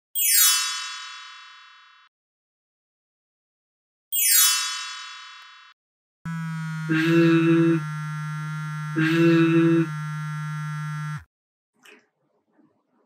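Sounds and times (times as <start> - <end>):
synthesized electronic buzz: 6.3 - 11.3.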